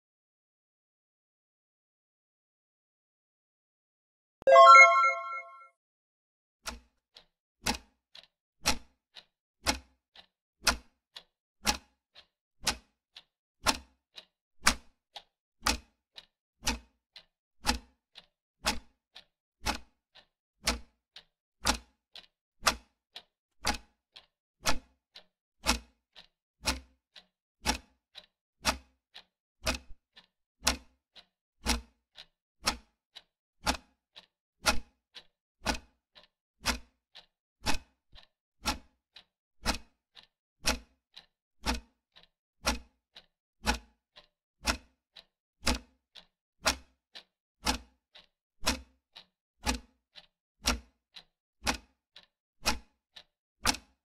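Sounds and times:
clock ticking: 0:33.6 - 0:34.3, 0:47.6 - 0:48.8, 0:49.7 - 0:54.0.

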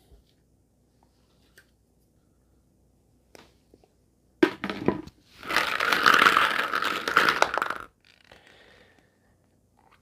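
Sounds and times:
plastic capsules clacking in a bowl: 0:05.4 - 0:07.9.

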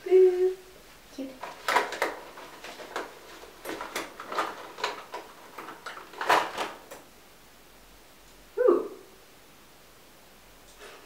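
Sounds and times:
makeup cases clicking and clattering: 0:01.4 - 0:07.0.

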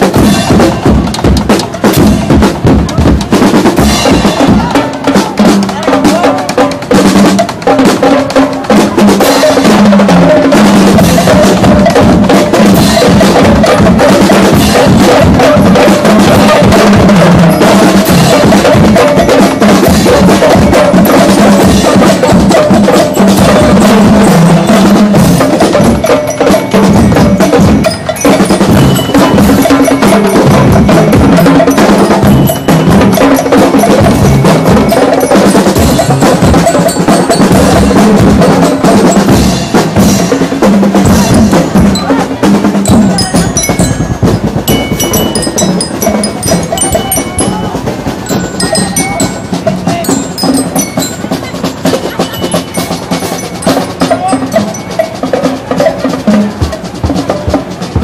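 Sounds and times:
bass drum: 0:40.8 - 0:51.4.

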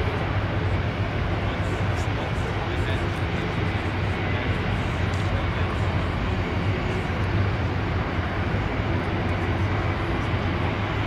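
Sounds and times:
aircraft engines rushing: 0:00.0 - 0:11.0.

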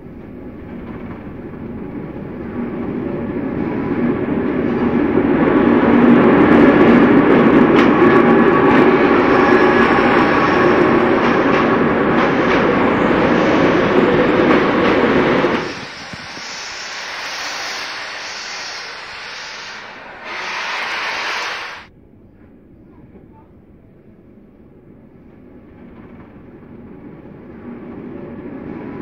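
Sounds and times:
steam train passing: 0:00.0 - 0:21.9, 0:24.6 - 0:29.0
train wheels clicking: 0:03.6 - 0:21.9.

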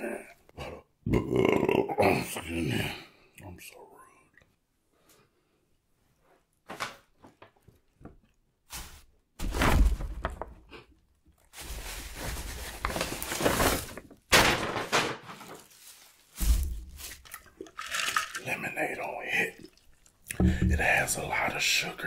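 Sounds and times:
bags rustling and crinkling: 0:11.3 - 0:18.4.

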